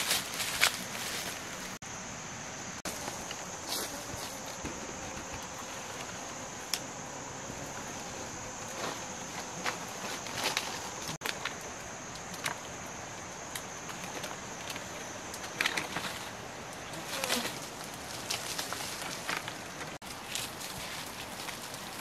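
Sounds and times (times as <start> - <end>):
dry palm fronds rustling: 0.0 - 1.8, 7.7 - 22.0
high insect whine: 0.0 - 22.0.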